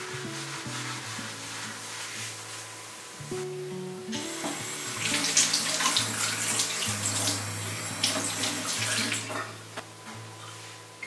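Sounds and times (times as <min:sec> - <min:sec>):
hands rubbing under water: 0:00.0 - 0:02.8
tap running into metal sink: 0:04.1 - 0:07.4, 0:08.0 - 0:09.5.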